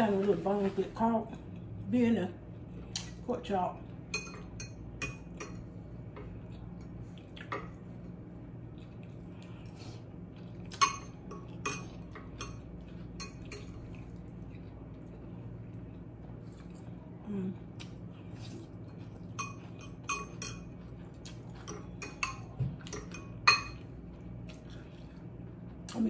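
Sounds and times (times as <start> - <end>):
fork clinking on glass bowl: 19.4 - 20.7, 21.6 - 23.8.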